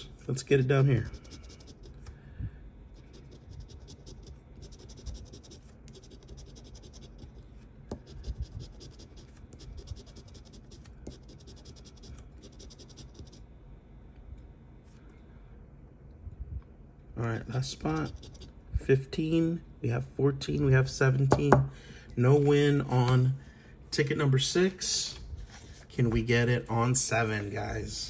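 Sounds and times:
scraping lottery ticket: 1.0s - 2.1s, 3.0s - 13.3s.

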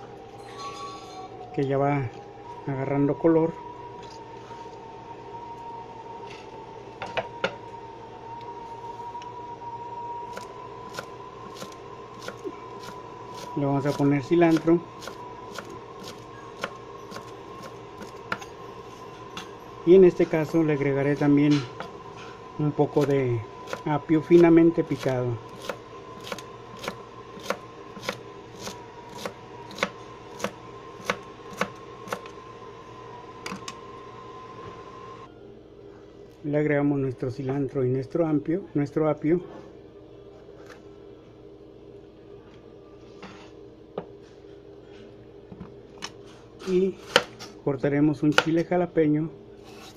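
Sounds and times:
high-pitched hum: 0.0s - 37.4s
knife chopping on cutting board: 25.0s - 32.2s, 47.0s - 47.5s.

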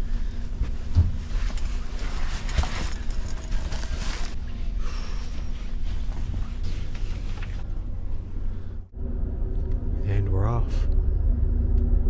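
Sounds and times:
rail car rumble and hum: 0.0s - 12.0s
clothing fabric rustling: 0.4s - 7.7s.

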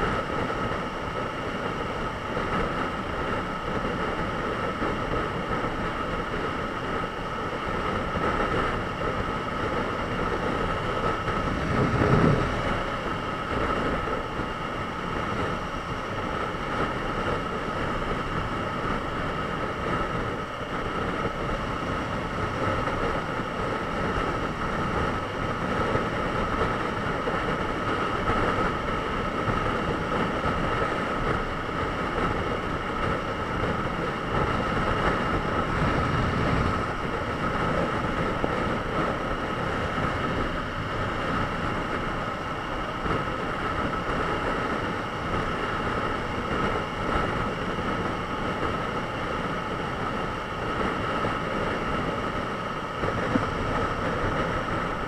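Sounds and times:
wind rushing: 10.5s - 14.0s, 34.2s - 41.5s.

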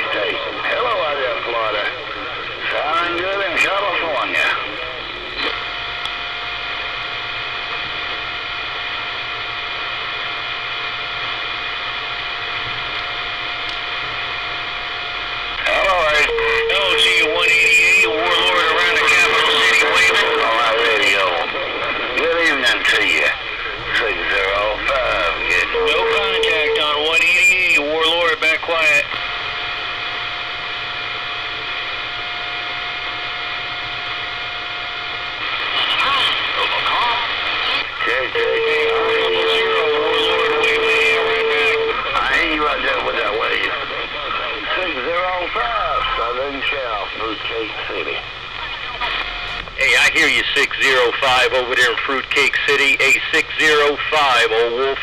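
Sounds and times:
radio static hiss: 0.0s - 55.0s
steady whistle: 16.1s - 18.1s, 25.4s - 27.1s.

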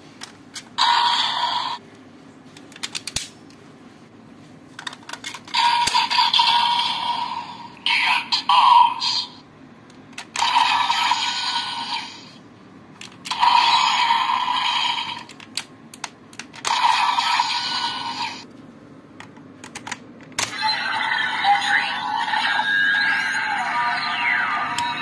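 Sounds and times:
toy electronic sound effects: 0.8s - 1.8s, 5.5s - 9.3s, 10.4s - 12.3s, 13.3s - 15.3s, 16.6s - 18.4s, 20.4s - 25.0s.

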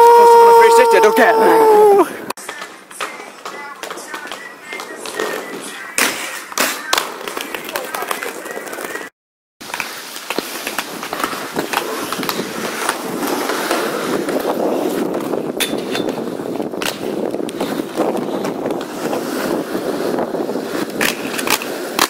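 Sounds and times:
skate wheels rolling on asphalt: 0.2s - 22.0s
skates clacking on metal: 2.4s - 9.1s, 15.1s - 19.0s.

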